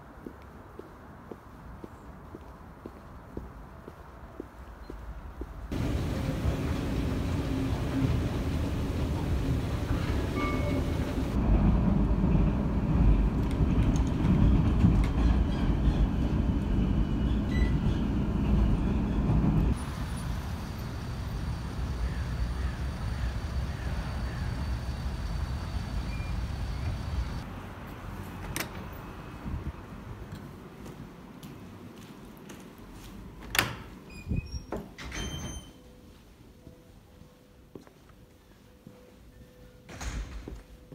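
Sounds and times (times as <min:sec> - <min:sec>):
city street traffic: 0:00.0 - 0:34.2
indoor ambience: 0:00.0 - 0:40.9
train rumbling on rails: 0:05.1 - 0:30.6.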